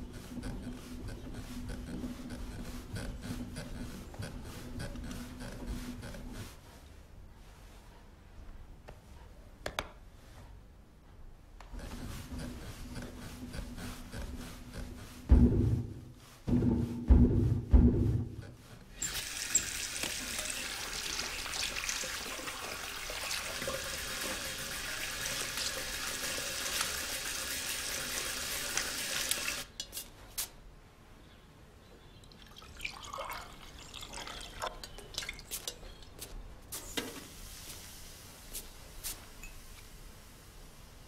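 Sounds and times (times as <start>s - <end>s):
tap water running into sink: 19.0s - 29.6s
coffee pouring into cup: 32.4s - 35.4s.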